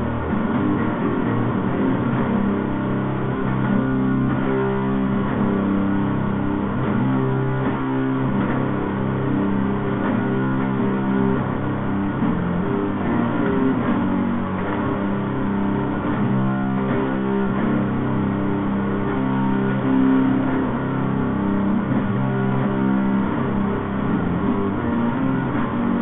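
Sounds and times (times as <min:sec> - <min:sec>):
held chords: 0:00.0 - 0:26.0
steady bass line: 0:00.0 - 0:26.0.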